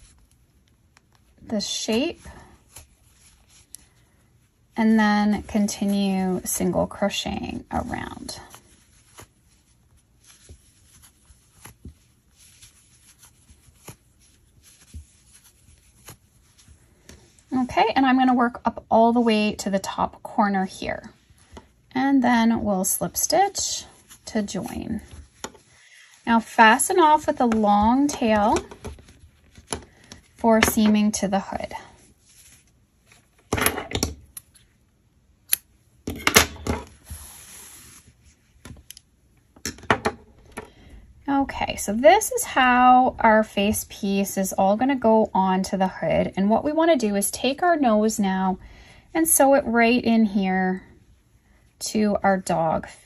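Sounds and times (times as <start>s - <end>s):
yarn rubbing and rustling: 0.0s - 33.5s, 36.9s - 38.9s.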